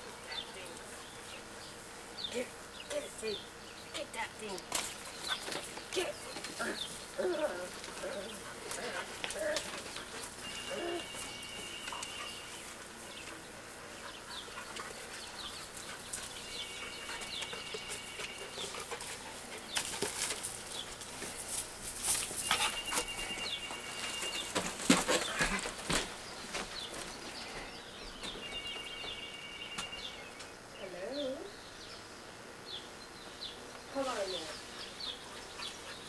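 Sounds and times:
rustling and crackling in a hedge: 0.0s - 36.0s.

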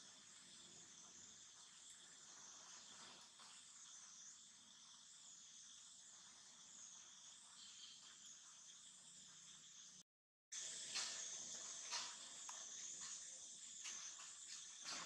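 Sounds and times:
high-pitched insect drone: 0.0s - 10.0s, 10.6s - 15.0s.

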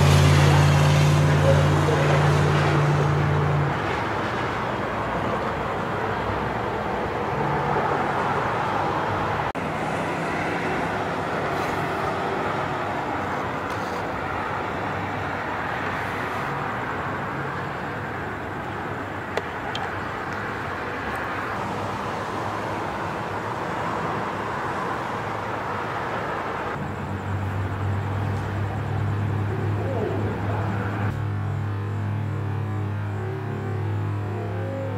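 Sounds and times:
freeway traffic rushing: 0.0s - 34.9s.

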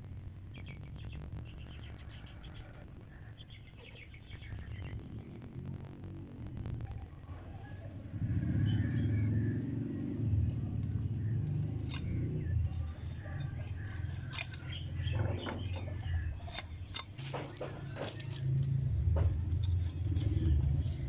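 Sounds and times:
low rumble: 0.0s - 16.9s
pruning shears clicking: 10.2s - 21.0s.

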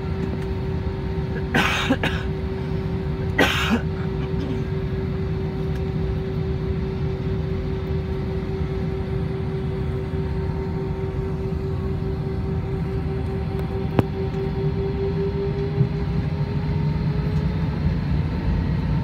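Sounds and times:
jet engines rumbling in cabin: 0.0s - 19.0s.

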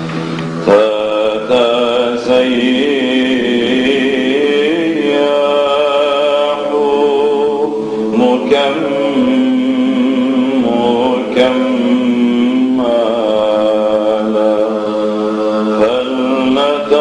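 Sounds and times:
man chanting a hymn: 0.6s - 17.0s.

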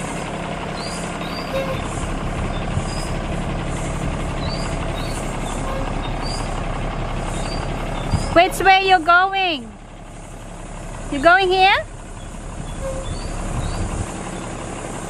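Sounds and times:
bus diesel engine driving past: 0.0s - 15.0s.

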